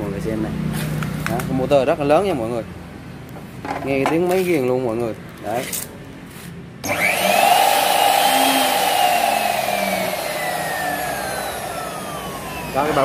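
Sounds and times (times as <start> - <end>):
cut-off saw motor whining: 6.8 - 13.0.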